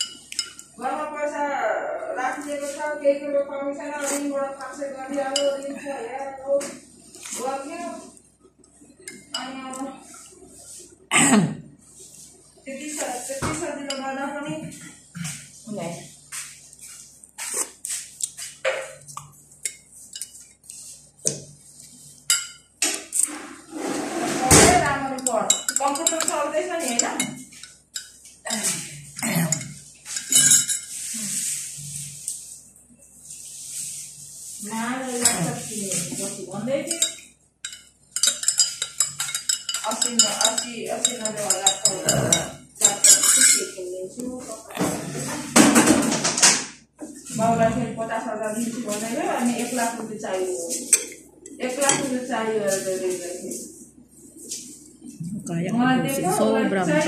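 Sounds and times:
teaspoon clinking in glass mug: 0:00.0 - 0:00.7, 0:25.2 - 0:28.2, 0:30.1 - 0:30.9, 0:36.9 - 0:43.7.

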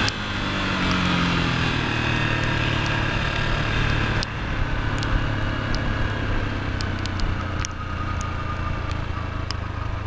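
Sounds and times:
motorcycle engine running: 0:00.0 - 0:10.0
tyres on wet road: 0:00.0 - 0:10.0
light sharp ticks: 0:02.4 - 0:03.0, 0:03.9 - 0:05.9, 0:06.7 - 0:10.0.

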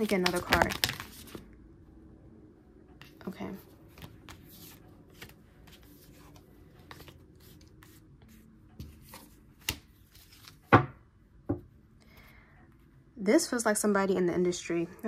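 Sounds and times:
cards shuffling: 0:00.0 - 0:01.4, 0:03.9 - 0:08.0, 0:08.8 - 0:10.8.

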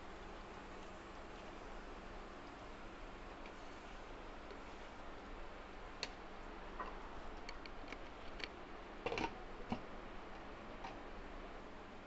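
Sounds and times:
gravy simmering hiss: 0:00.0 - 0:09.1.

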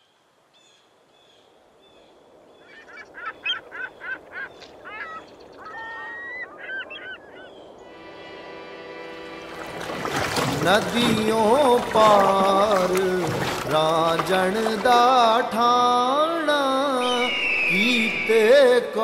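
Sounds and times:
water birds honking: 0:02.5 - 0:16.3
sustained music tones: 0:07.6 - 0:16.3.

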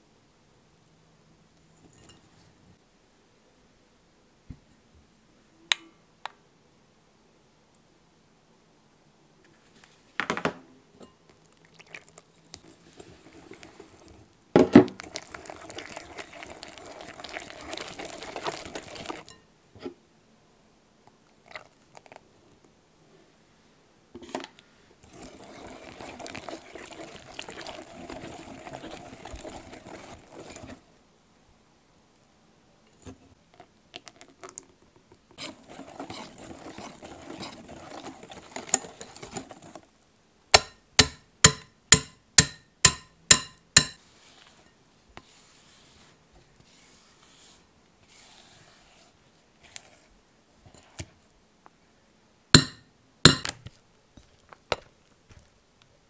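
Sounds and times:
whisk scraping glass bowl: 0:15.1 - 0:19.4, 0:25.0 - 0:30.8, 0:35.4 - 0:39.8, 0:46.7 - 0:50.1
sharp whisk taps: 0:40.6 - 0:44.0, 0:52.6 - 0:53.6.

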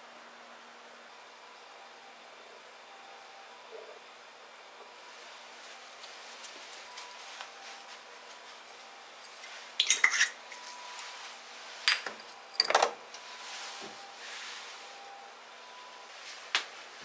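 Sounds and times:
small kitchenware clinking: 0:09.8 - 0:10.8.

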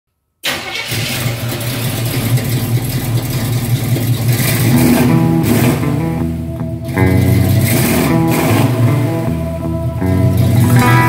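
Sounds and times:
car engine rumbling: 0:00.5 - 0:11.0
plucked string music: 0:04.4 - 0:11.0.

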